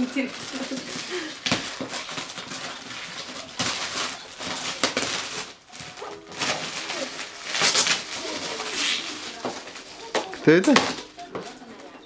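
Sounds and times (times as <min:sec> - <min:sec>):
foil bag crinkling: 0:00.0 - 0:11.9.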